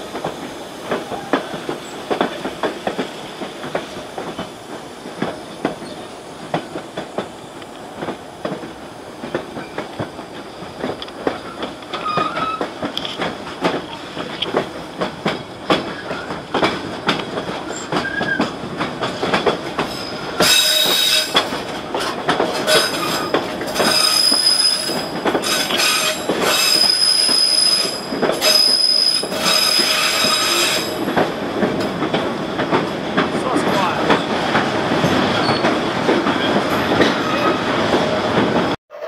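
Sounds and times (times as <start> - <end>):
train wheels clicking over rail joints: 0.0 - 38.8
high-pitched wheel squeal: 11.4 - 12.7, 22.7 - 30.9.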